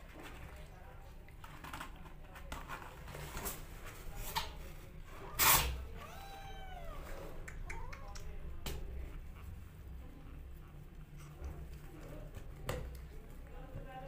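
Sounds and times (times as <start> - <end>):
kittens suckling: 5.0 - 14.0
kitten mewing: 5.2 - 8.4.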